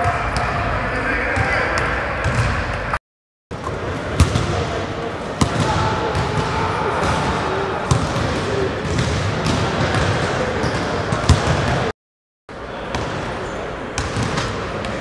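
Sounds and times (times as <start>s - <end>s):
echoing gym hubbub: 0.0s - 3.0s, 3.6s - 11.9s, 12.5s - 15.0s
basketballs bouncing on hardwood: 7.9s - 10.2s.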